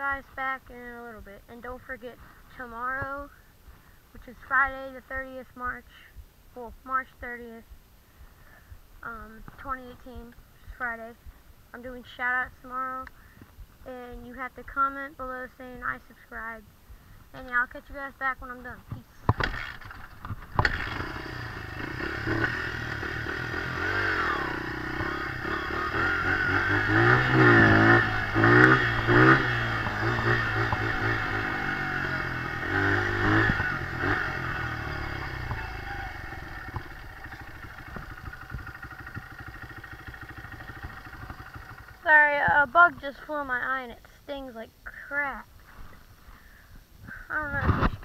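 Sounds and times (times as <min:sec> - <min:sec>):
dirt bike engine revving: 0:19.3 - 0:42.4.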